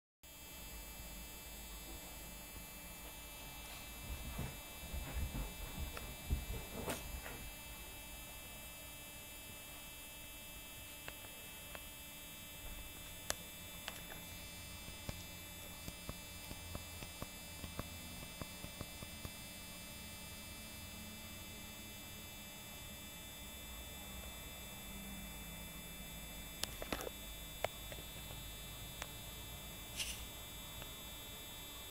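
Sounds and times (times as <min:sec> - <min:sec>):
electrical hum and hiss: 0:00.3 - 0:31.9
soft low thumps and rustling: 0:03.9 - 0:07.3.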